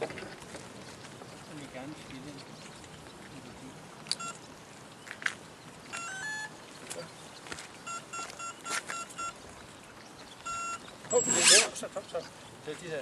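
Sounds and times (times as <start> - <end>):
short electronic beeps: 4.2 - 4.4, 5.9 - 6.5, 7.8 - 9.4, 10.4 - 11.6.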